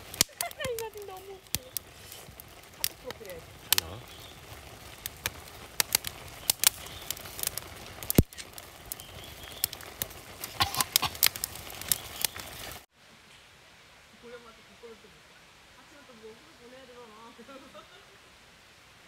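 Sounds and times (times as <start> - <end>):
campfire crackling and popping: 0.0 - 13.6.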